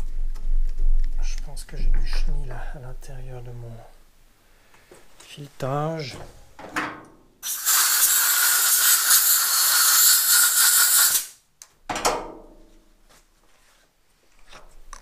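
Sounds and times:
compressed air blow gun hissing: 7.4s - 11.4s.

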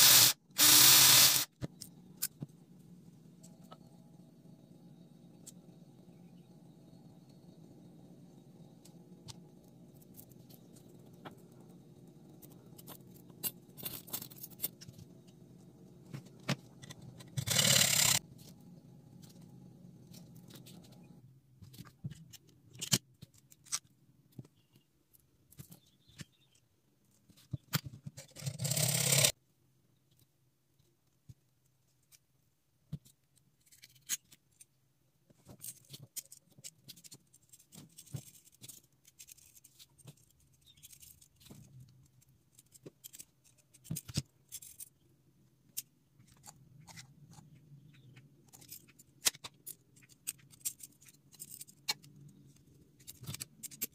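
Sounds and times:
small metal parts clicking: 12.4s - 15.0s, 16.8s - 18.2s, 33.2s - 34.7s, 35.5s - 45.0s, 47.9s - 53.9s.

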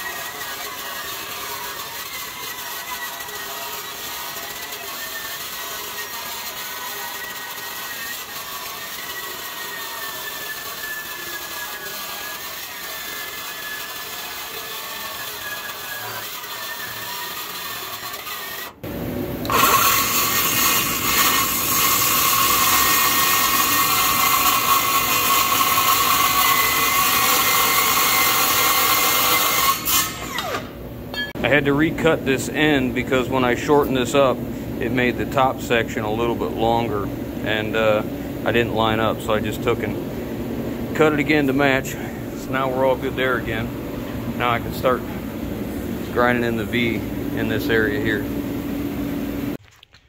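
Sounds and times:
circular saw cutting steel: 0.0s - 40.3s, 40.9s - 49.0s.

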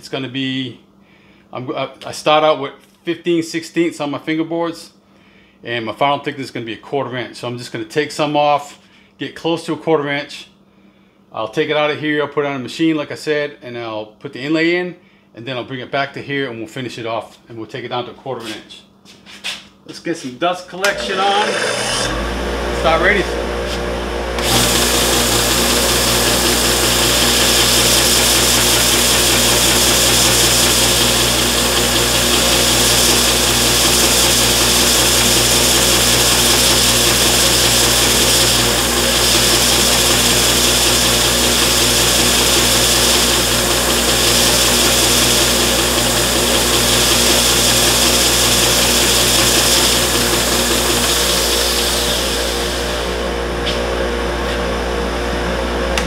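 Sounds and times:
belt sander sanding wood: 20.2s - 56.0s
motor hum: 20.8s - 56.0s.

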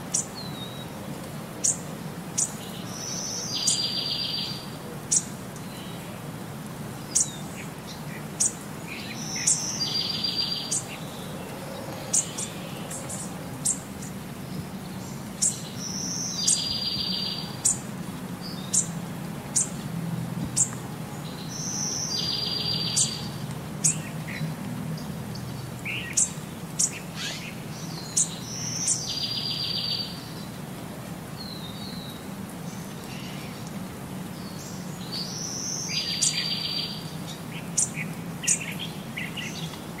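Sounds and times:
birds chirping: 7.0s - 19.8s, 20.5s - 30.6s, 31.4s - 40.0s.

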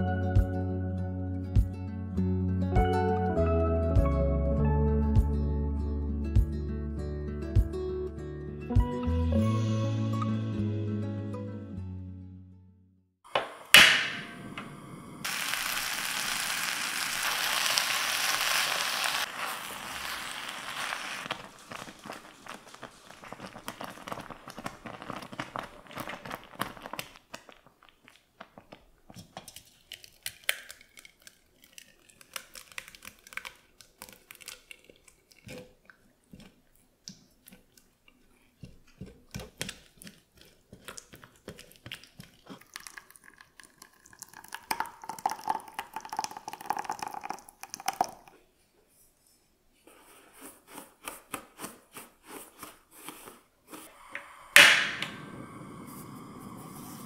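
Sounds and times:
liquid pouring into saucepan: 41.9s - 48.3s.

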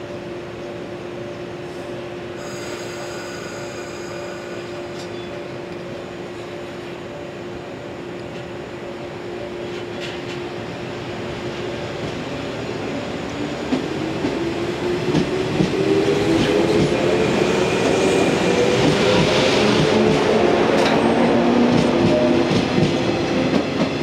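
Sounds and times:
train running noise: 0.0s - 24.0s.

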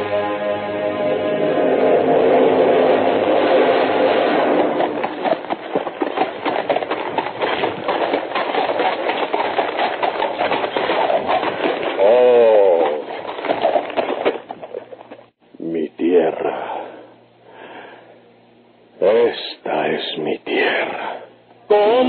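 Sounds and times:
wash of sound: 1.3s - 5.6s
galloping horse hooves: 2.9s - 15.4s.

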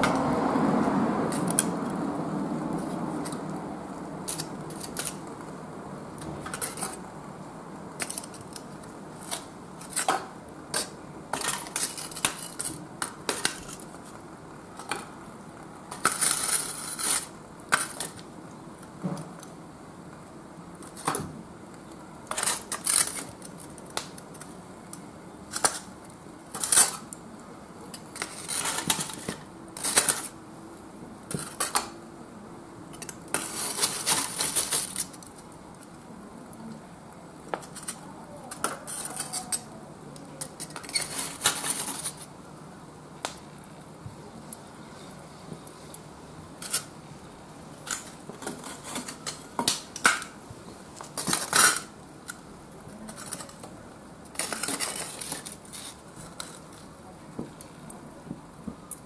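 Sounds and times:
charcoal clinking against metal tongs: 37.5s - 42.2s.

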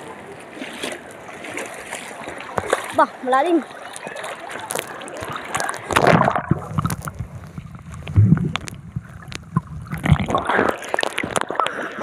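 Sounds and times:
water sloshing against microphone: 0.0s - 12.0s
underwater gurgling and knocks: 4.7s - 12.0s.

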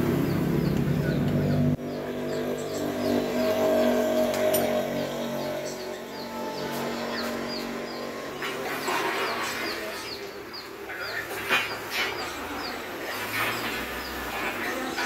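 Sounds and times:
bird chirping: 0.0s - 15.0s
workshop background noise: 0.0s - 15.0s.

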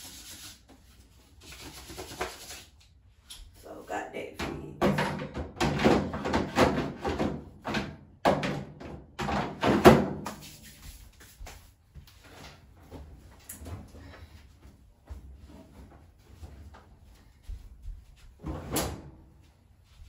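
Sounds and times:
knocks and thumps at dryer: 4.4s - 10.4s.

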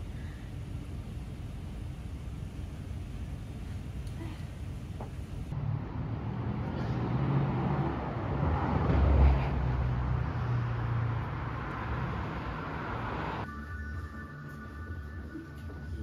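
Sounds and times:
cars passing on street: 4.8s - 13.5s.

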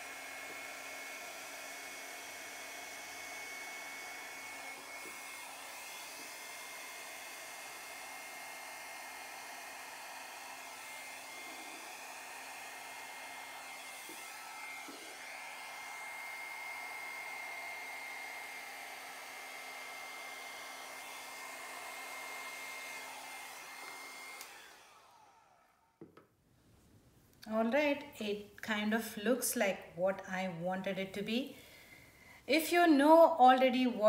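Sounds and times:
hair dryer blowing with whine: 0.0s - 26.1s.

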